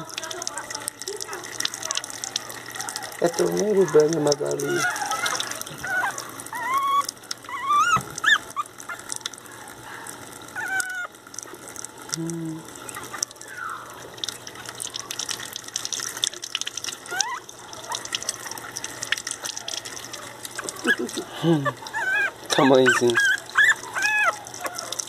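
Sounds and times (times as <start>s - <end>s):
water tap running into sink: 0.0s - 25.0s
puppy whimpering: 1.2s - 11.2s, 17.0s - 25.0s.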